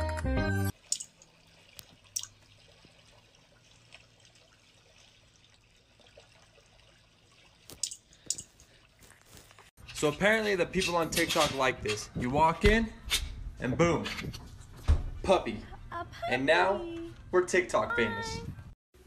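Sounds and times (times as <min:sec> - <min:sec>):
background music: 0:00.0 - 0:00.7.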